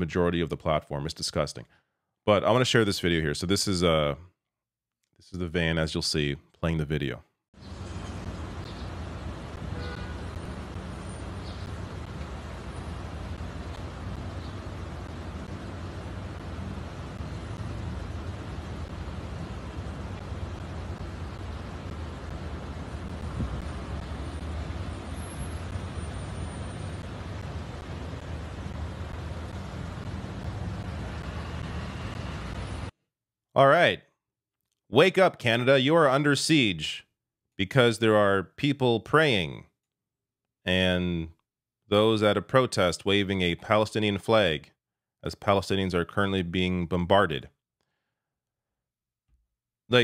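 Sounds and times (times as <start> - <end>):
city street traffic rumble: 7.6 - 33.0.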